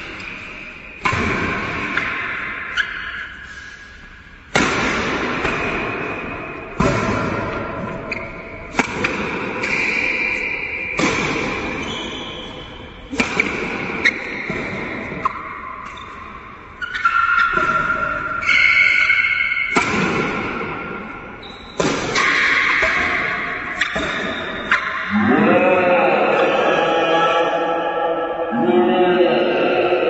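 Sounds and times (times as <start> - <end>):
rackets striking shuttlecock: 0.0 - 3.4, 4.5 - 25.1
person singing: 25.1 - 30.0.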